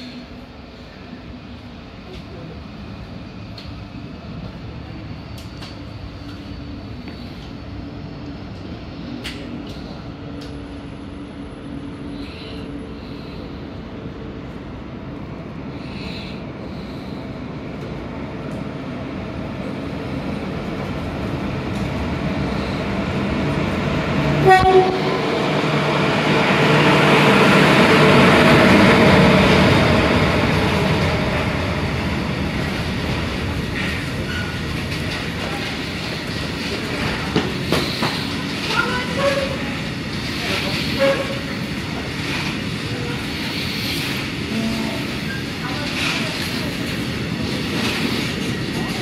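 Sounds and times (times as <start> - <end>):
freight train rumbling past: 0.0 - 49.0
train wheels clacking: 32.7 - 49.0.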